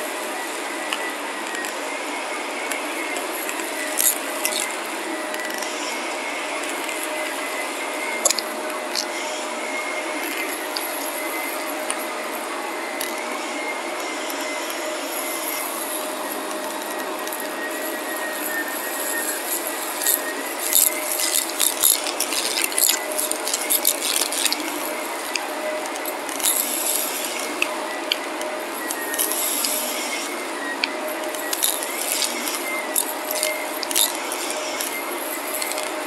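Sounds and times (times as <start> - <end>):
vacuum cleaner running: 0.0 - 36.0
grit rattling up vacuum nozzle: 2.6 - 4.8, 14.2 - 28.2, 31.2 - 36.0.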